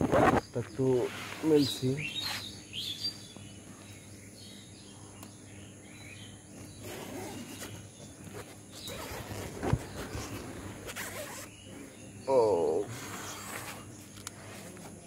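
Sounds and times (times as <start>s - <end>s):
tent zipper being pulled open: 0.0s - 1.6s, 6.6s - 11.6s, 12.9s - 14.6s
faint bird chirps: 0.1s - 14.8s.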